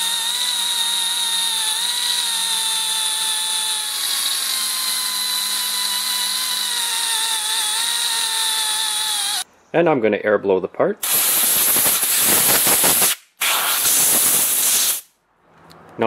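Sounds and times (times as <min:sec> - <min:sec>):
die grinder high whine: 0:00.0 - 0:09.4.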